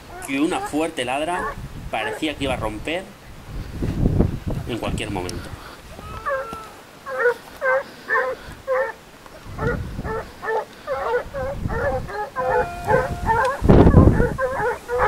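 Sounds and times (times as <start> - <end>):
hounds baying and barking: 0.0 - 2.8, 5.8 - 15.0.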